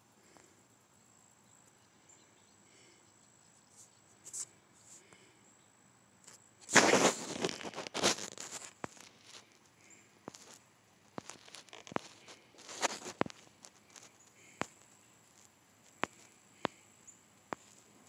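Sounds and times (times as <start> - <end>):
background hiss: 0.0 - 18.0
rustling scraping noise: 6.6 - 14.6.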